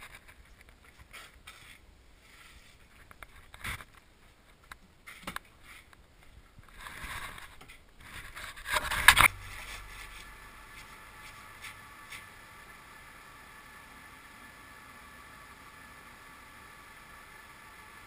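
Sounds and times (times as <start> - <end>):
faint low hum: 0.0 - 18.0.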